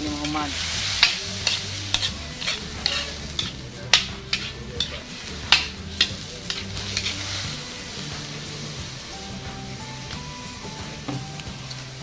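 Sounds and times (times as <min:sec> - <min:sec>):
vegetables sizzling: 0:00.0 - 0:12.0
utensil scraping and knocking pan: 0:00.2 - 0:07.4.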